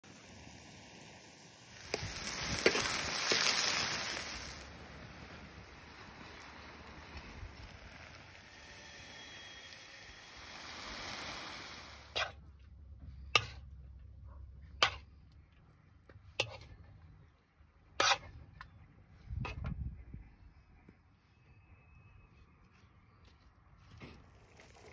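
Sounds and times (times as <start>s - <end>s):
steady hiss: 0.1s - 12.2s
metal spoon scraping steel pan: 16.4s - 16.7s, 18.0s - 18.3s.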